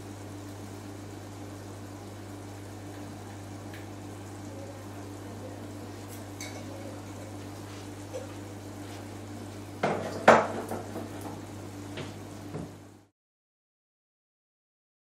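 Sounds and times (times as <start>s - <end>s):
steady low hum: 0.0s - 13.1s
dishes clattering: 6.4s - 7.4s, 9.8s - 11.4s.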